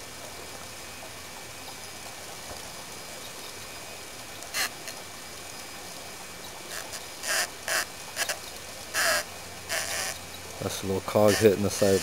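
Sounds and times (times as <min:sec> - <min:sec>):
tiny motor whirring in bursts: 0:11.2 - 0:12.0.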